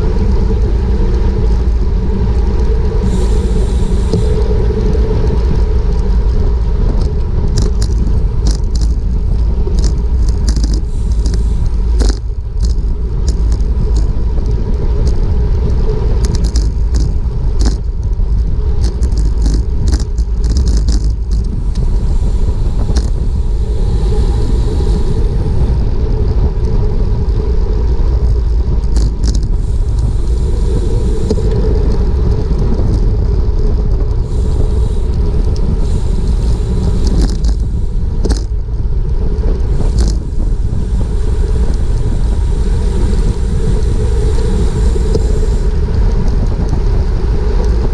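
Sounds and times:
wind buffeting microphone: 0:00.0 - 0:47.9
sharp clicks and ticks: 0:00.4 - 0:25.8, 0:28.2 - 0:47.9.

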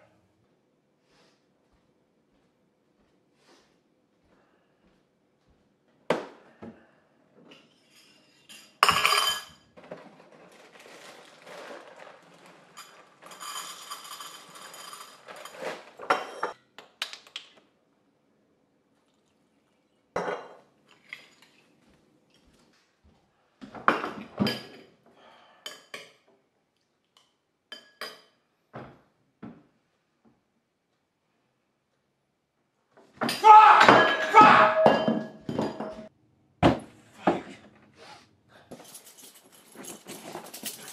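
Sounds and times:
dry cereal pouring into bowl: 0:10.0 - 0:15.6.

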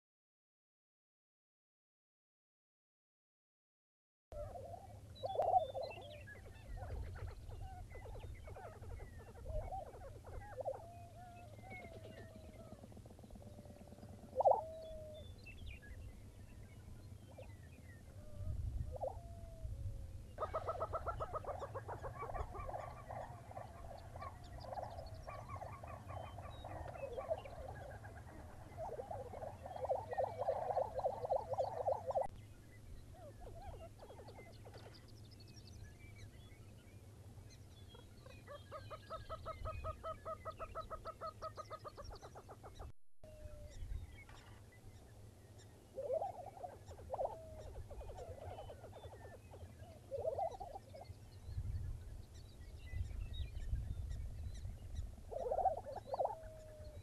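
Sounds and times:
birds bubbling gobble calls: 0:04.4 - 0:12.8, 0:14.0 - 0:15.3, 0:20.3 - 0:32.3, 0:37.9 - 0:42.9, 0:45.9 - 0:51.2, 0:55.3 - 0:57.0
short gliding bird calls: 0:04.4 - 0:15.6, 0:20.4 - 0:32.3, 0:43.6 - 0:51.1, 0:55.3 - 0:57.0.

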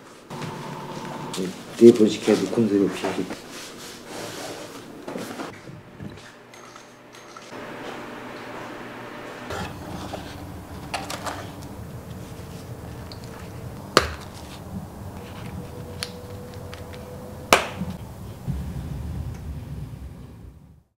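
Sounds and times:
steady low hum: 0:00.2 - 0:20.9
handling clicks and rustle: 0:09.6 - 0:17.1.

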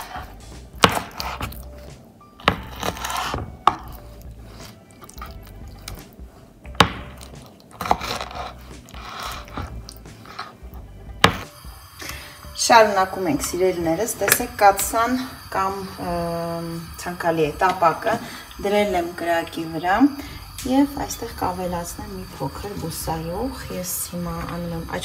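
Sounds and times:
scraping and handling noise: 0:00.0 - 0:11.5
sharp knocks: 0:06.7 - 0:07.2.

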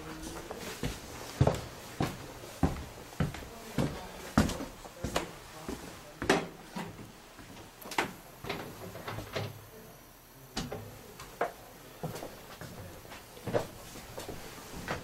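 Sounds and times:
footsteps on wooden floorboards: 0:00.1 - 0:07.7, 0:11.4 - 0:15.0.

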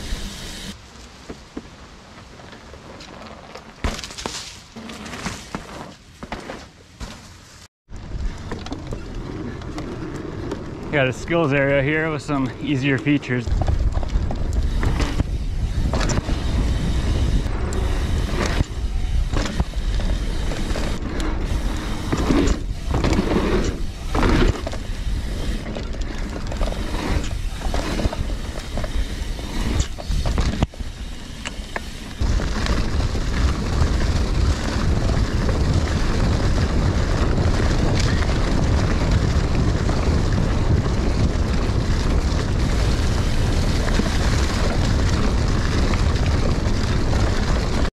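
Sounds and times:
bike tyres rumbling on dirt: 0:00.0 - 0:47.9
bike rattling over bumps: 0:02.3 - 0:47.9
wind rushing on microphone: 0:10.3 - 0:31.0, 0:32.1 - 0:47.9.

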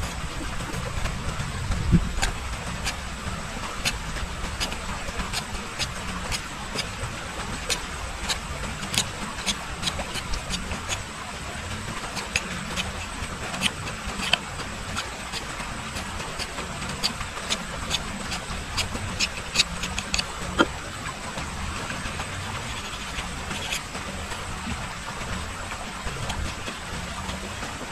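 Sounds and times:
steady low rumble: 0:00.0 - 0:27.9
knife whittling bamboo: 0:02.1 - 0:11.1, 0:12.0 - 0:20.9, 0:22.2 - 0:23.9, 0:25.5 - 0:27.1.

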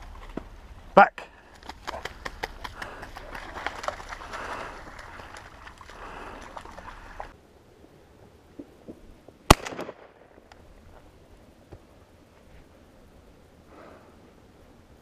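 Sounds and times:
faint cracks: 0:01.4 - 0:07.4
shotgun blast: 0:09.5 - 0:10.2.

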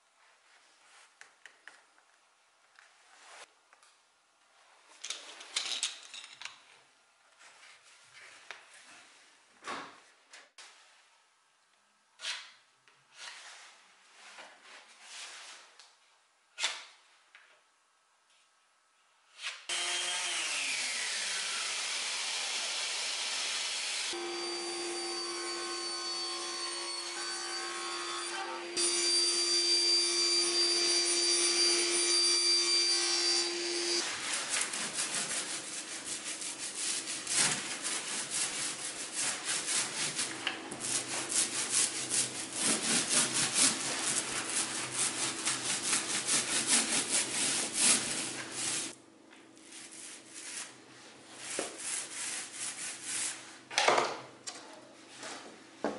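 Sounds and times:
table saw cutting plywood: 0:19.7 - 0:49.0
roller rubbing strokes: 0:34.0 - 0:49.0.

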